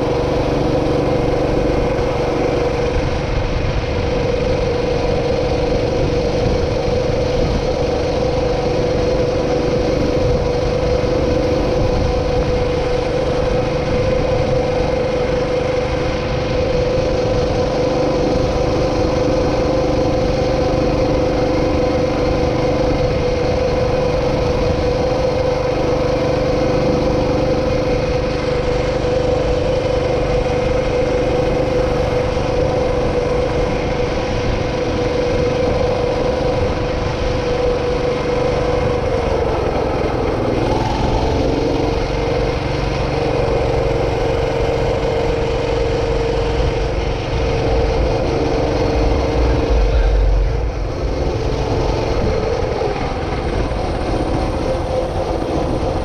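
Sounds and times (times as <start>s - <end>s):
small vehicle engine running: 0.0s - 56.0s
wind rumble on microphone: 0.0s - 56.0s.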